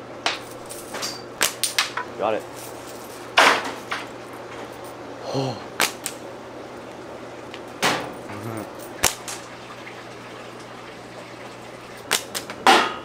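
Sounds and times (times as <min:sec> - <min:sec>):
slingshot snapping: 0:05.8 - 0:06.2, 0:09.0 - 0:09.4, 0:12.1 - 0:12.5.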